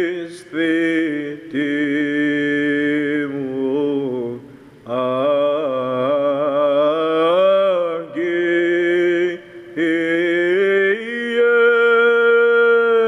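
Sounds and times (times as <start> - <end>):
man singing chant unaccompanied: 0.0 - 13.0.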